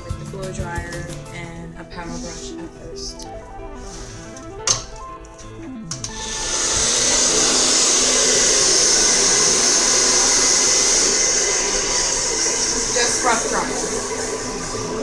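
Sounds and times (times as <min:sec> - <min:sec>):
faint background music: 0:00.0 - 0:08.3
blow dryer running: 0:01.9 - 0:15.0.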